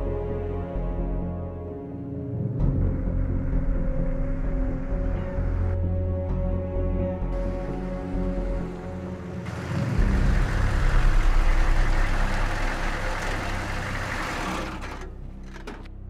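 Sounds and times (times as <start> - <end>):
car engine and tyre rumble: 7.3 - 16.0.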